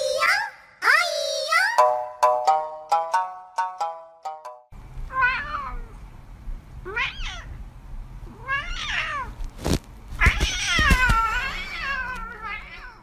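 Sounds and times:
cat meowing: 5.1 - 5.9, 6.9 - 7.6, 8.3 - 9.4, 10.2 - 13.0.

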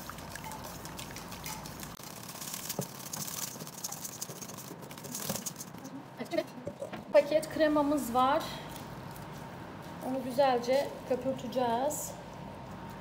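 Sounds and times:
whisk clicking in metal bowl: 0.0 - 2.0.

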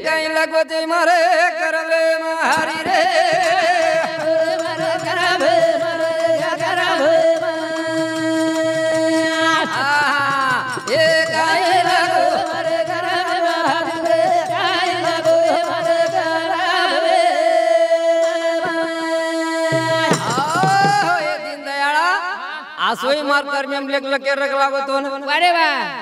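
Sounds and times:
hand drum: 2.4 - 21.6.

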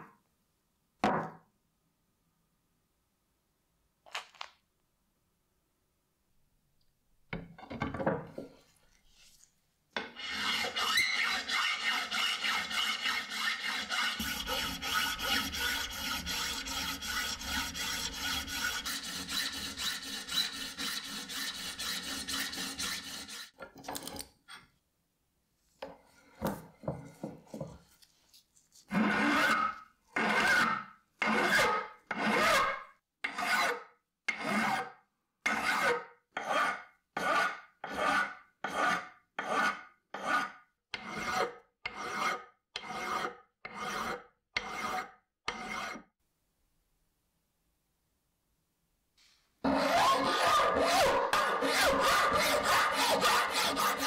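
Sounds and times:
hand file rasping: 10.2 - 23.6, 28.9 - 34.9, 35.5 - 46.1, 49.6 - 54.0.

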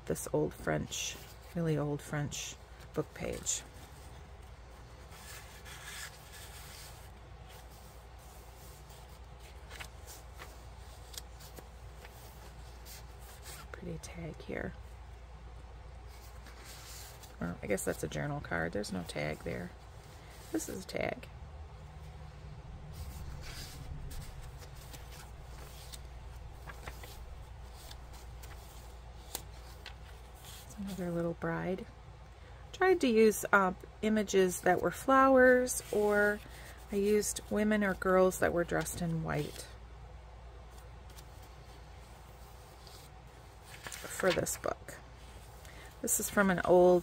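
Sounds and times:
steady low hum: 0.0 - 47.0
paper pages rustling: 2.4 - 13.8, 16.1 - 20.9, 22.9 - 31.3, 35.8 - 39.7, 40.7 - 47.0.

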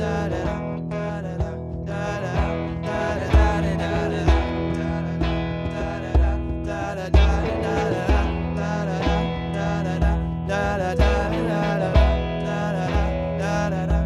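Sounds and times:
electric guitar strummed: 0.0 - 14.0
low drum beat: 0.0 - 14.0.

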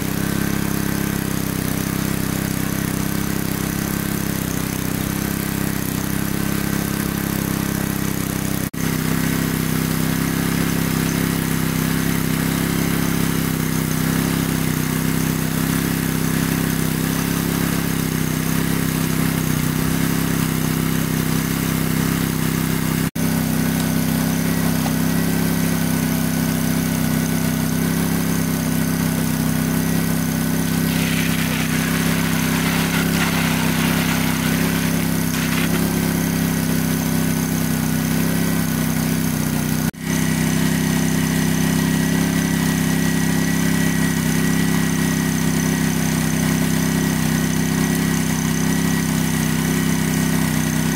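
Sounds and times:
water pump engine running: 0.0 - 50.9
hiss: 30.6 - 37.0.

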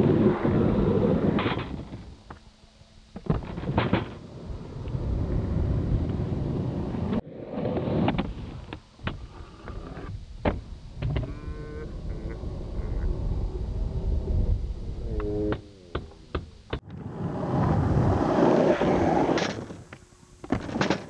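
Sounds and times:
skateboard wheels rolling: 0.0 - 2.4, 3.1 - 11.3, 16.8 - 21.0.

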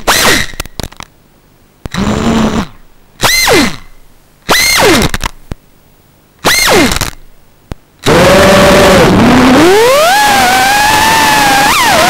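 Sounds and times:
drone motor whine: 1.9 - 3.9, 4.5 - 5.2, 6.4 - 7.2, 8.0 - 12.0.

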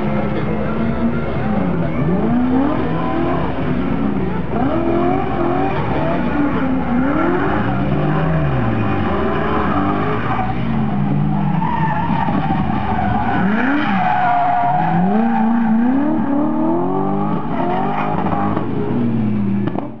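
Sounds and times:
car engine revving: 0.0 - 20.0
tyres squealing: 4.6 - 16.7.

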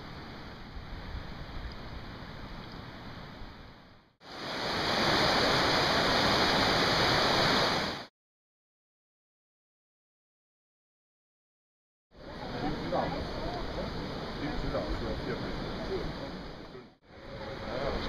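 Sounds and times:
faint outdoor hiss: 0.0 - 8.0, 12.2 - 18.0
mountain stream rushing: 0.0 - 8.1, 12.2 - 18.0.

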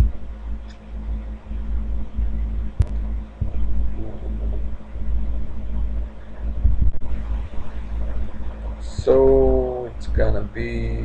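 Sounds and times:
low rumble with faint hum: 0.0 - 11.0.

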